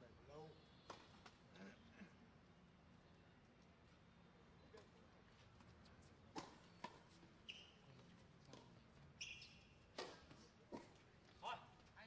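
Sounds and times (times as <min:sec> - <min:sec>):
tennis ball struck and bouncing: 0:06.3 - 0:07.0, 0:09.9 - 0:11.0
shoe squeaks: 0:07.4 - 0:08.0, 0:09.2 - 0:09.9.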